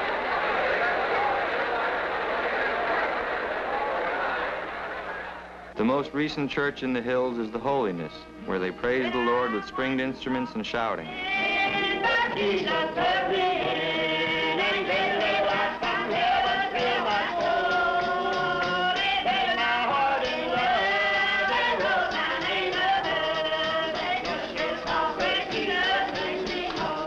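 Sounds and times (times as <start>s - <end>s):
men and women singing a hymn: 8.5s - 27.0s
strummed acoustic guitars: 11.4s - 27.0s.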